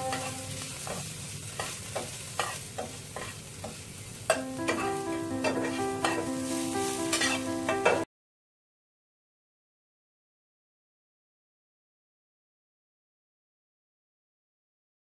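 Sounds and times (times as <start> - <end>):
background music: 0.0 - 0.8, 4.3 - 8.1
spatula scraping a frying pan: 0.0 - 8.0
vegetables sizzling in hot oil: 0.0 - 8.1.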